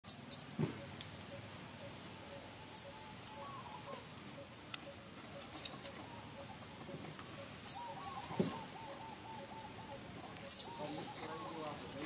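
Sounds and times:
baby monkey squeaking: 0:02.7 - 0:03.6, 0:05.4 - 0:06.1, 0:07.7 - 0:08.9, 0:10.4 - 0:12.0.

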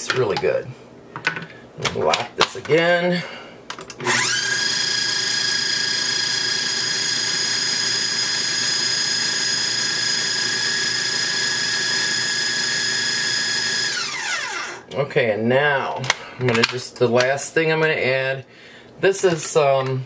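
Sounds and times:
food processor motor whine: 0:04.0 - 0:14.8.

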